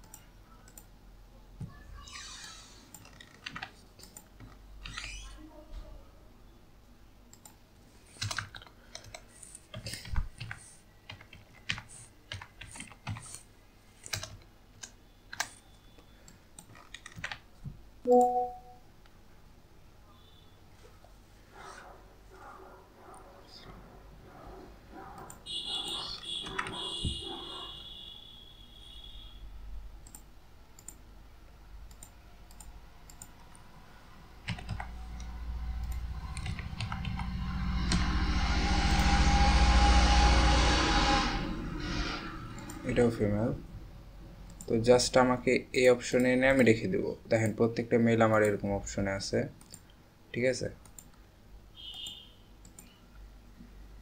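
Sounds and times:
computer keyboard typing: 0:02.9 - 0:05.0, 0:07.3 - 0:13.4, 0:14.0 - 0:15.6, 0:16.6 - 0:17.4, 0:26.0 - 0:26.9, 0:31.9 - 0:33.6, 0:34.4 - 0:34.9, 0:35.8 - 0:37.2
message notification chime: 0:18.1 - 0:18.8
low rumble: 0:33.8 - 0:44.4.

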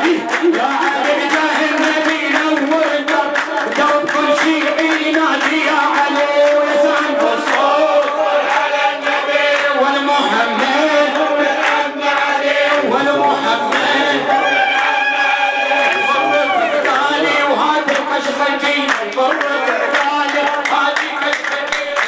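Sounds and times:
man chanting into a microphone: 0:00.0 - 0:14.6, 0:15.4 - 0:22.0.

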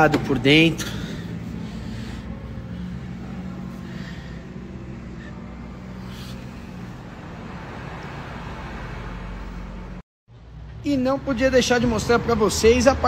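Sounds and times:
car engine idling: 0:00.0 - 0:07.6.

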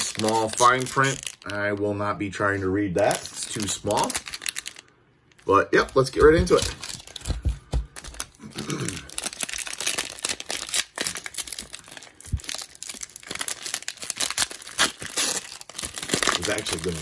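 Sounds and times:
cellophane wrapper crinkling and tearing: 0:00.0 - 0:17.0.

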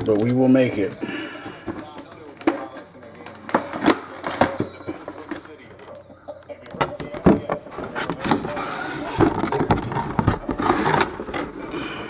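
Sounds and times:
knocks and scrapes: 0:07.0 - 0:11.7.

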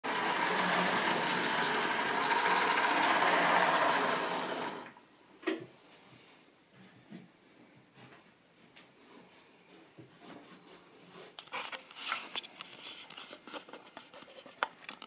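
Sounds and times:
model train wheels rattling on rail: 0:00.0 - 0:04.9
small electric motor whirring: 0:00.1 - 0:04.9.

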